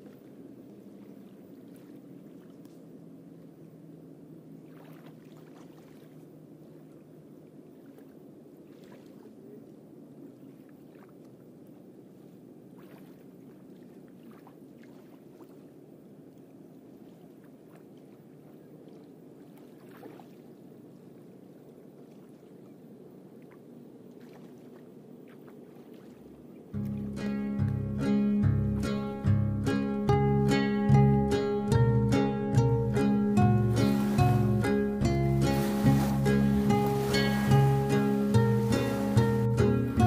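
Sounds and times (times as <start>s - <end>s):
distant boat motor humming: 22.6s - 40.0s.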